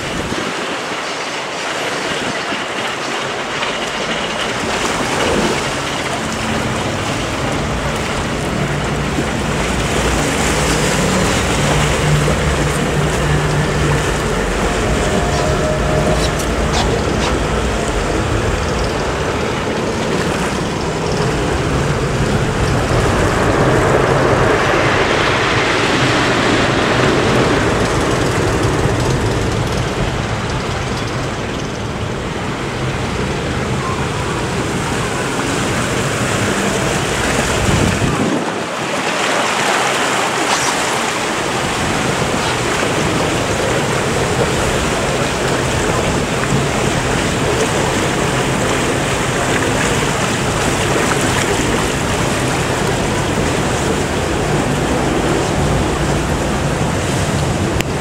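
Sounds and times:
rushing churning river water: 0.0 - 58.0
wind buffeting microphone: 0.0 - 58.0
low rumble: 3.7 - 33.1.

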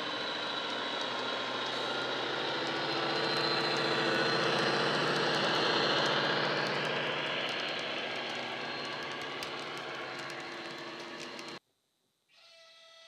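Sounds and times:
diesel engine from small speaker: 0.0 - 11.6
faint clicks: 3.2 - 11.6.

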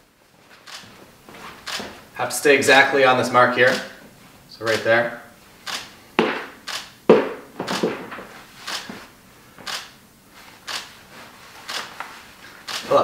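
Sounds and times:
camera shutter clicks: 0.6 - 0.9, 1.6 - 1.9, 3.7 - 3.9, 5.6 - 5.9, 6.6 - 7.0, 7.7 - 7.9, 8.6 - 8.9, 9.7 - 10.0, 10.7 - 10.9, 11.6 - 11.9, 12.6 - 13.0.

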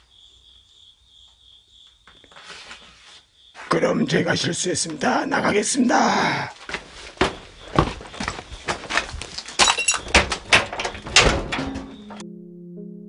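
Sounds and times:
knocks scrapes and crunches: 2.2 - 3.8
footsteps on debris: 6.6 - 10.6.

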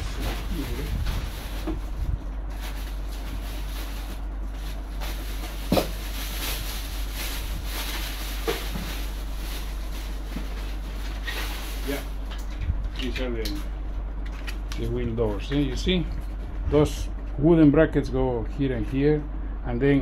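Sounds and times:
plastic bags rustling: 0.0 - 12.4
steady low hum: 0.0 - 20.0.

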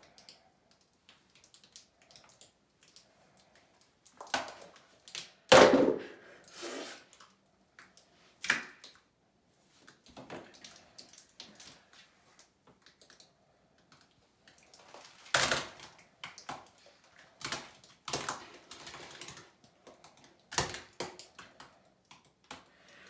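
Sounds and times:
slime splattering into bathtub: 5.5 - 6.2.

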